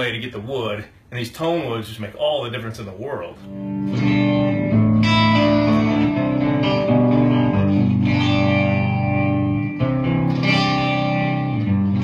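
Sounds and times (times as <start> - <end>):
electric guitar chords: 3.4 - 12.0.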